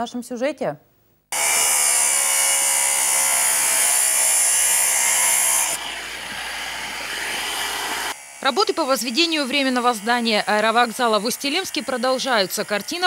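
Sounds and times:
angle grinder cutting metal: 1.3 - 13.0.

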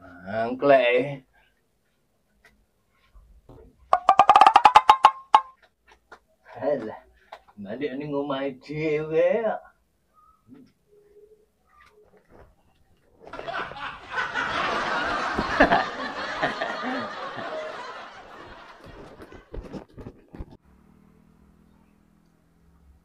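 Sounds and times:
group laughter: 13.2 - 19.6.

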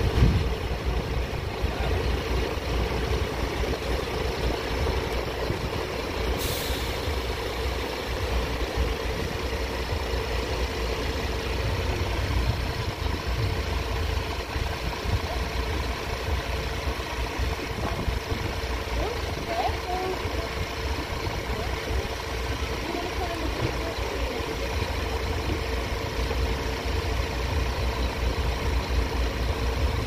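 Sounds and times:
road vehicles idling: 0.0 - 30.0
air brakes hissing: 6.3 - 7.8.

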